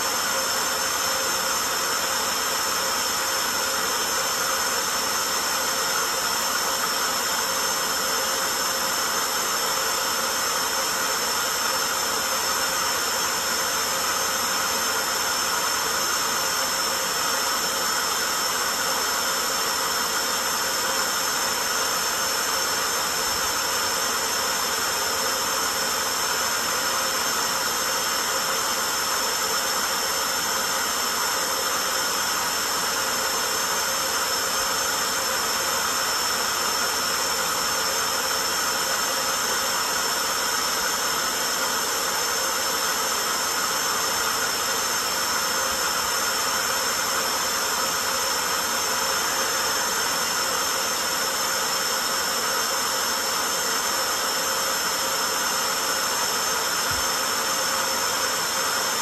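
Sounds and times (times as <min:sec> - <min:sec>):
stick vacuum whining: 0:56.6 - 0:57.8.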